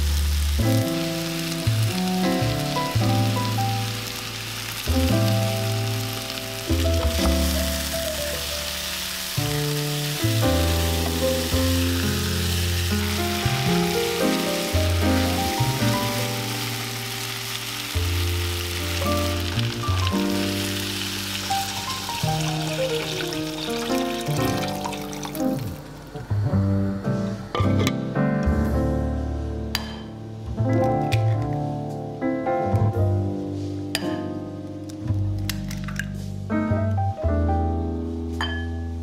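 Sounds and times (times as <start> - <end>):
vegetables sizzling in oil: 0.0 - 26.4
light background music: 0.0 - 39.0.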